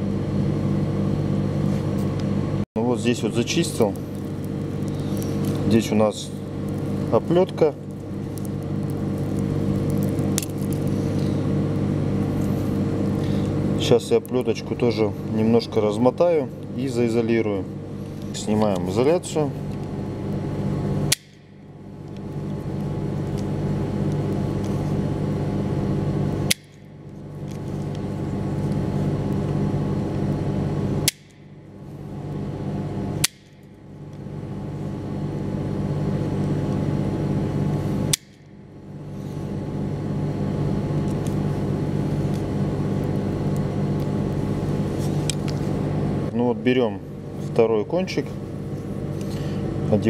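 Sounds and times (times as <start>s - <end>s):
steady low hum: 0.0s - 50.0s
wire stripper snapping shut: 21.1s - 21.5s, 31.0s - 31.4s, 33.2s - 33.6s.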